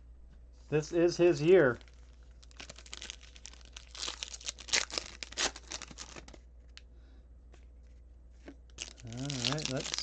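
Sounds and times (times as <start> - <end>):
card pack wrapper tearing: 1.7 - 6.4, 8.7 - 10.0.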